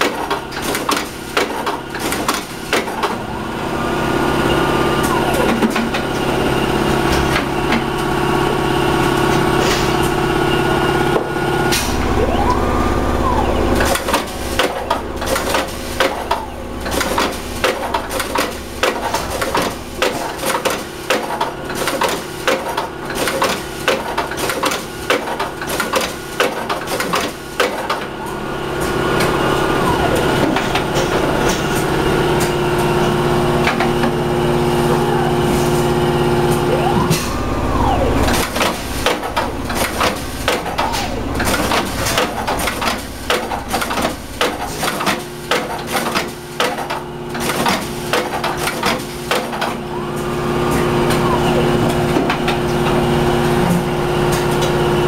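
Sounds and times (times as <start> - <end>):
fish cutting machine humming: 0.0 - 55.0
machine whining tones: 1.9 - 20.0, 27.3 - 44.4, 49.4 - 54.3.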